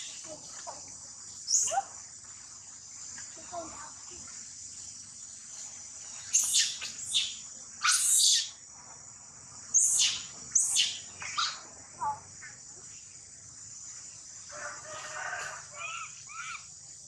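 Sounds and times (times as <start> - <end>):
high insect drone: 0.0 - 17.0
monkey screaming: 6.4 - 8.5, 9.8 - 11.6, 15.8 - 16.7.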